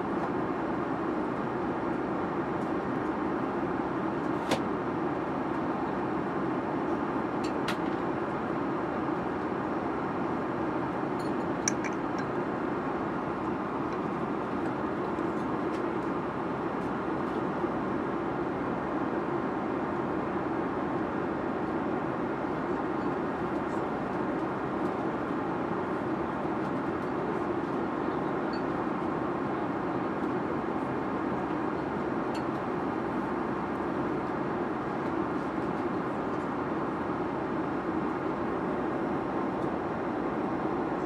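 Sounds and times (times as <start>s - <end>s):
jet airliner cabin noise: 0.0s - 41.0s.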